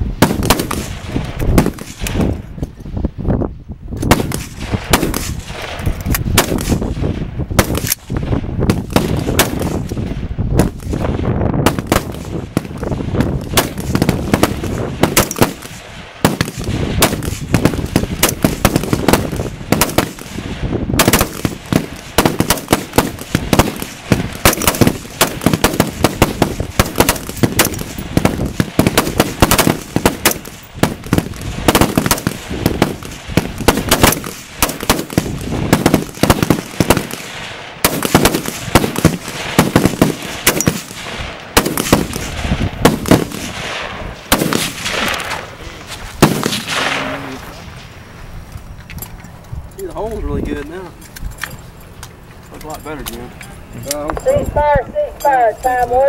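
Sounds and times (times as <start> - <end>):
rapid rifle shots: 0.2 - 2.3, 4.0 - 10.0, 10.6 - 45.5, 46.2 - 47.2.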